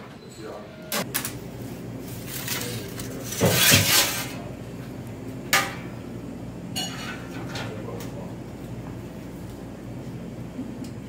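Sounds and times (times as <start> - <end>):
metal peel scraping on stone: 3.3 - 4.3.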